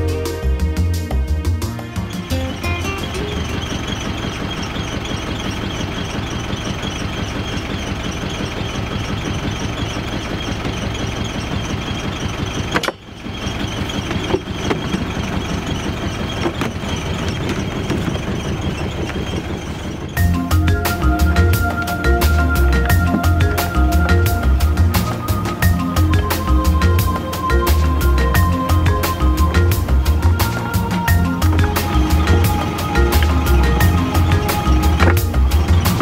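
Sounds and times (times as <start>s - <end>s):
boat engine chugging: 0.0s - 36.0s.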